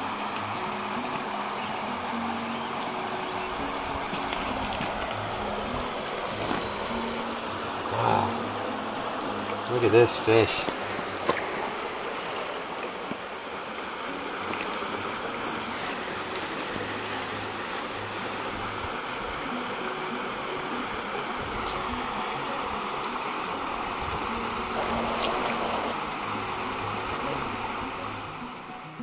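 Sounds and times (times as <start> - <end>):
stream flowing over rocks: 0.0 - 29.0
hand splashing water: 24.7 - 26.0.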